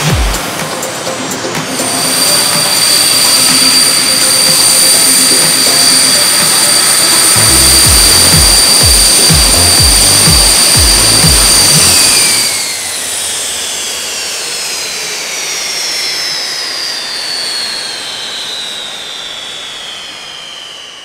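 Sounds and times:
music with heavy beat: 0.0s - 12.6s
jet turbine whine winding down: 0.0s - 21.0s.

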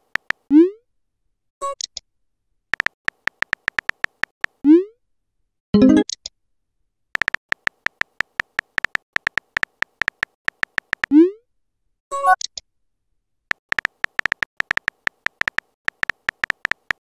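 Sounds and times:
phone keyboard taps: 0.0s - 0.4s, 2.8s - 4.6s, 7.2s - 11.1s, 13.5s - 17.0s.

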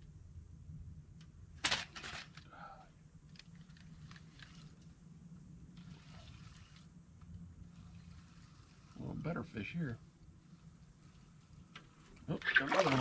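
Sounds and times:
low hum: 0.0s - 12.9s.

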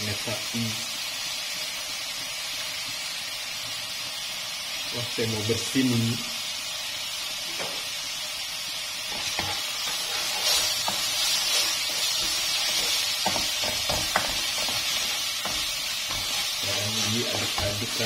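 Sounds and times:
food sizzling in hot oil: 0.0s - 18.0s
metal spoon scraping a wok: 9.1s - 17.8s.

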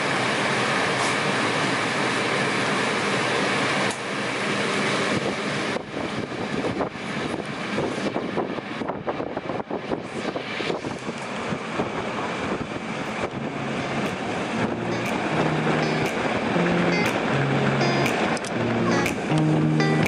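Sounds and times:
rolling train noise: 0.0s - 20.0s
wind buffeting the microphone: 5.1s - 14.7s.

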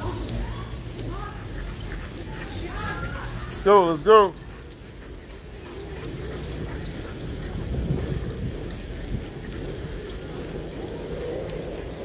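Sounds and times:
tyres rolling on asphalt: 0.0s - 12.0s
wind noise on microphone: 5.9s - 12.0s.

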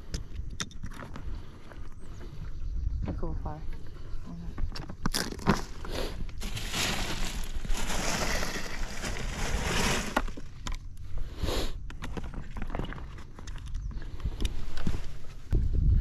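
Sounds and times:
bag rustling and crinkling: 5.1s - 10.6s.

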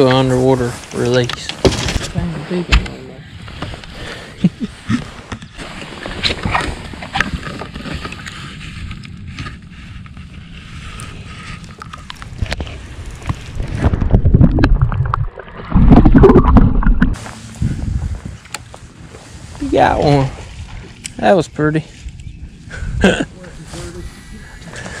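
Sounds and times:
wind buffeting on microphone: 5.5s - 21.1s, 22.0s - 25.0s
water sloshing and splashing: 11.6s - 17.2s.

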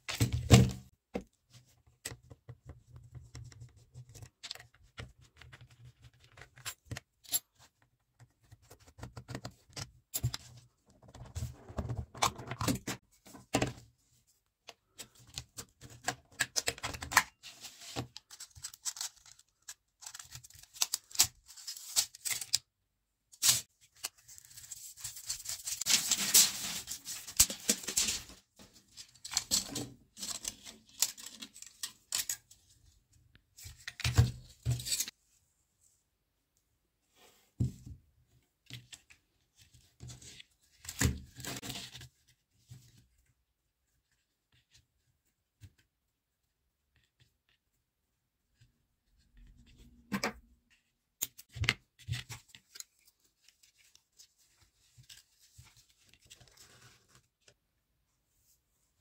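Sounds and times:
rustling and scraping: 24.3s - 31.5s.

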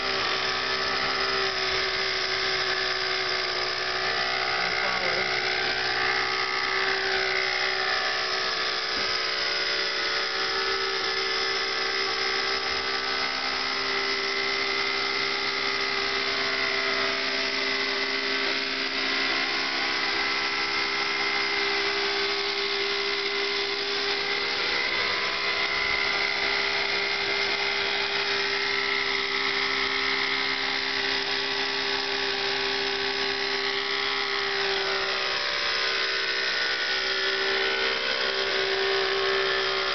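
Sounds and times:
model helicopter engine whining: 0.0s - 39.9s.

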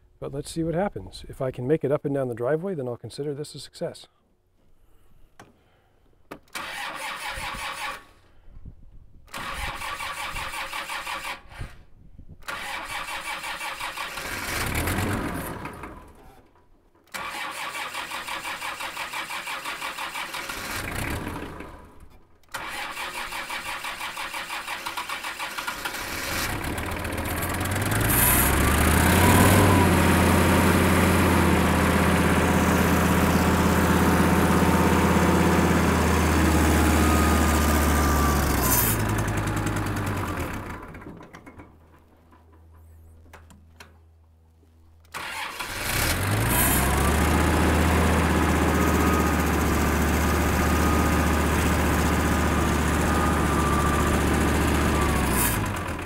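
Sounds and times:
tractor starter cranking: 6.4s - 8.2s, 9.3s - 11.8s, 12.4s - 16.4s, 17.0s - 42.7s, 45.1s - 56.0s
diesel engine idling: 25.3s - 41.0s, 45.2s - 56.0s.

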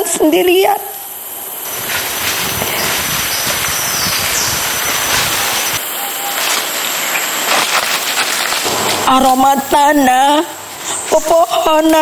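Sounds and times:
steady rushing noise: 1.0s - 11.6s.

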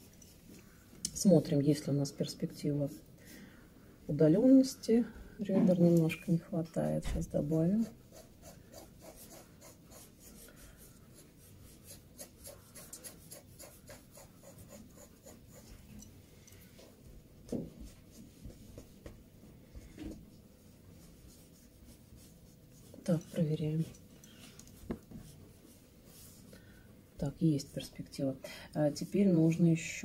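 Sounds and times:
pencil scratching on paper: 7.4s - 15.9s.

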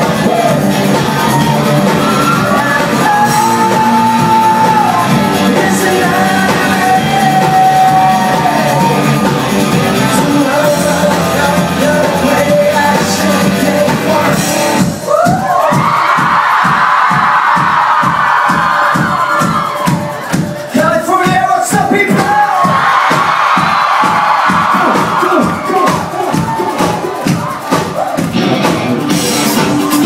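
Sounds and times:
live rock band playing: 0.0s - 16.7s, 17.4s - 30.0s.

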